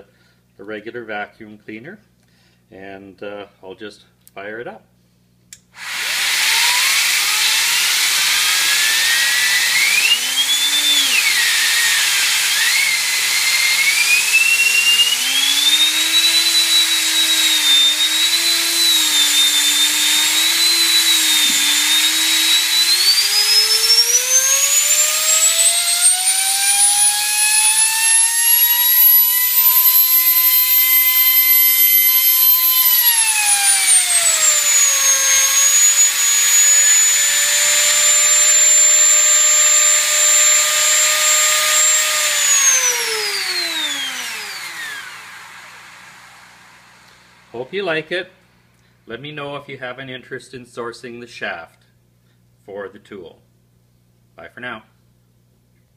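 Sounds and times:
vacuum cleaner running: 5.8s - 47.7s
high turbine whine: 27.8s - 33.2s.

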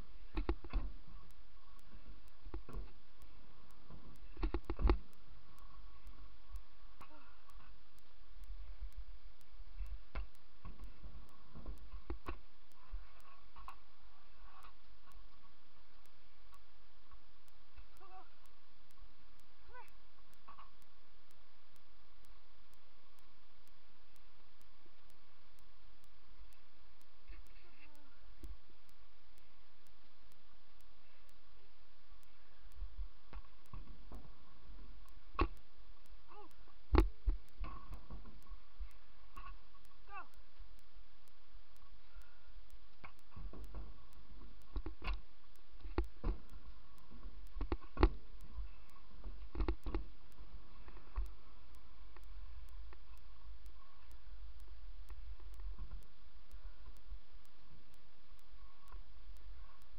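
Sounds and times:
steady hiss: 0.0s - 59.9s
steady ticking: 0.0s - 59.9s.

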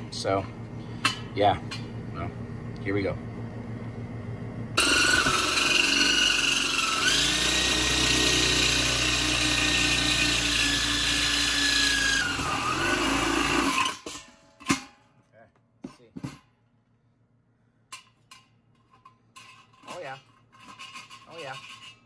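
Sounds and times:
electric drill drilling steel: 4.8s - 14.1s.

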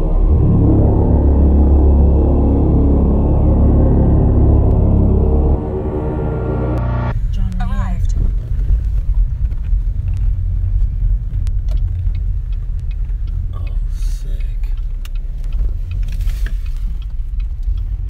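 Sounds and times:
car engine and tyres rumbling: 0.0s - 18.0s
gravel ticks and pops: 8.4s - 17.9s.

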